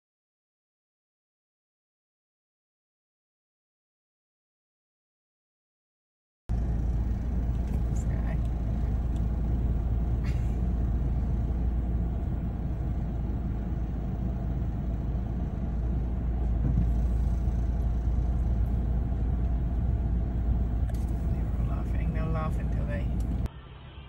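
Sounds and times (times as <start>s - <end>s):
road and engine rumble in car: 6.5s - 24.0s.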